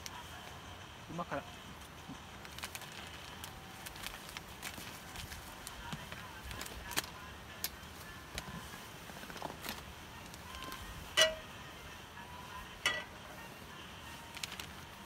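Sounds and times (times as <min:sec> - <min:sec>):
frying pan clanking on metal grate: 0:11.2 - 0:11.5, 0:12.9 - 0:13.2.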